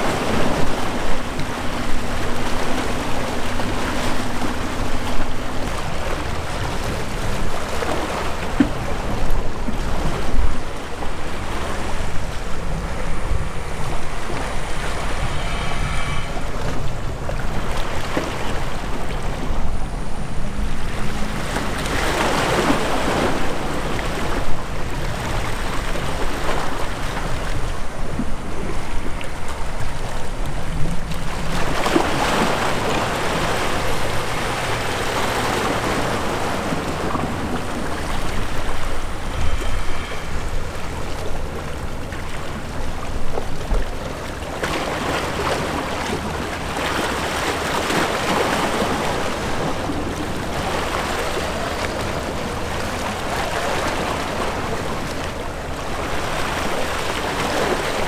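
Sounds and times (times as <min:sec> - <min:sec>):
water noise: 0:00.0 - 0:58.0
wind: 0:00.0 - 0:58.0
low rumble: 0:09.6 - 0:22.0, 0:32.8 - 0:43.0.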